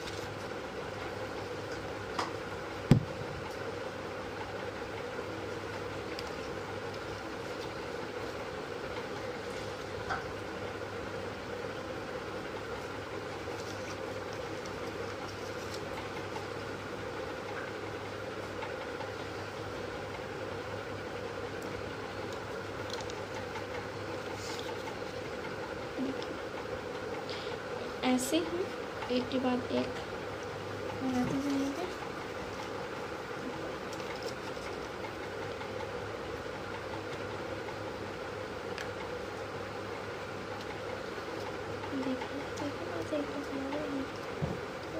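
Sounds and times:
steady mechanical hum: 0.0 - 44.9
paper rustling: 13.4 - 16.0.

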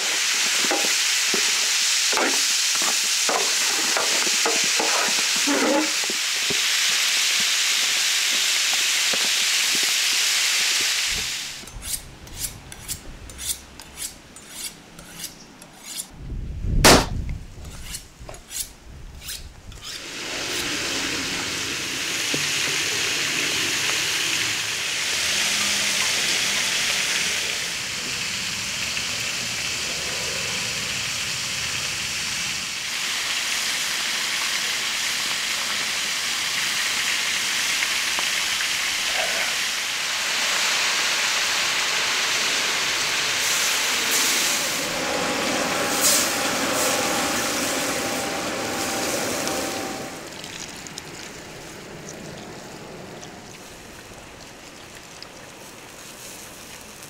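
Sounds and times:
meat sizzling in a hot pan: 0.0 - 11.6
loud thud: 16.8 - 17.2.

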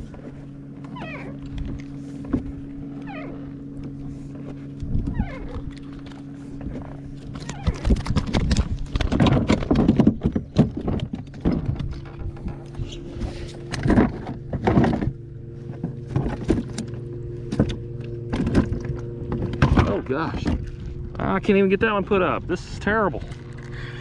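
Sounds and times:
low hum: 0.0 - 24.0
short falling squeaks: 0.9 - 1.4, 3.0 - 3.5, 5.1 - 5.6, 7.4 - 7.9
fish thumping against kayak: 13.4 - 20.8.

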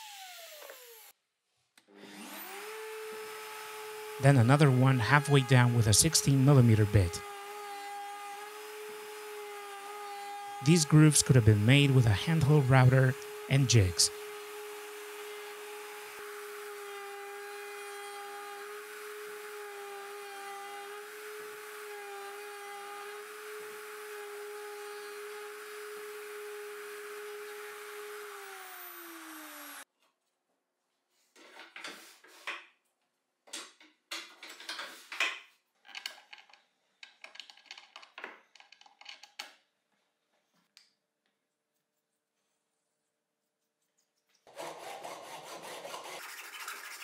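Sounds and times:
rotary tool whining: 2.0 - 29.8.

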